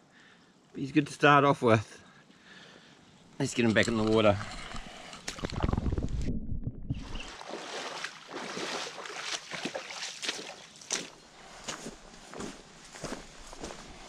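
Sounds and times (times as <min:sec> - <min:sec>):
river water splashing: 0:07.0 - 0:11.8
splashy steps through water: 0:07.0 - 0:11.8.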